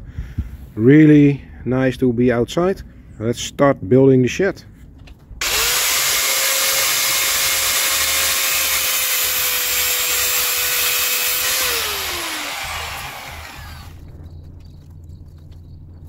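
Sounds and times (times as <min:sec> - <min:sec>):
angle grinder cutting steel: 0:05.4 - 0:14.0.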